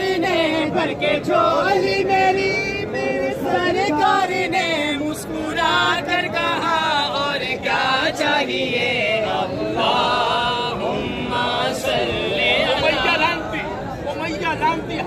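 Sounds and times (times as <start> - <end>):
men chanting together: 0.0 - 13.8.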